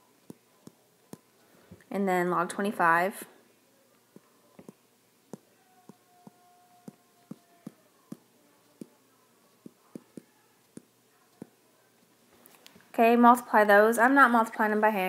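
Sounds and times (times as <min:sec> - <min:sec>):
stylus tapping on tablet screen: 0:04.1 - 0:09.0, 0:09.6 - 0:11.6.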